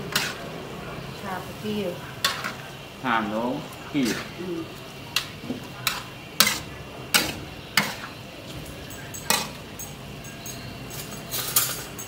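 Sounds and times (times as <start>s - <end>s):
spatula scraping steel wok: 0.0s - 0.5s, 2.2s - 2.7s, 3.9s - 8.2s
low frying hiss: 0.0s - 12.0s.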